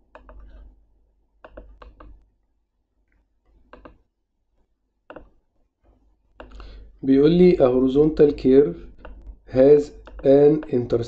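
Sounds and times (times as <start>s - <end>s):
computer mouse clicking: 0.0s - 0.8s, 1.4s - 2.2s, 3.1s - 4.1s, 5.1s - 5.4s, 6.4s - 6.8s, 8.8s - 10.8s.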